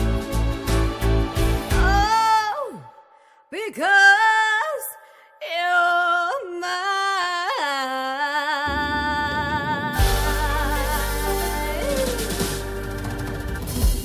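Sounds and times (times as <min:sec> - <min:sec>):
woman singing: 0:01.6 - 0:12.9
backing band: 0:09.9 - 0:14.0.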